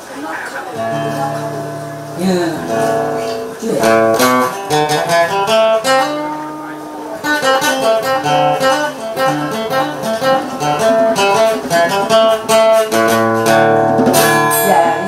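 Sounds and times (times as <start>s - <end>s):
acoustic guitar melody: 0.4s - 15.0s.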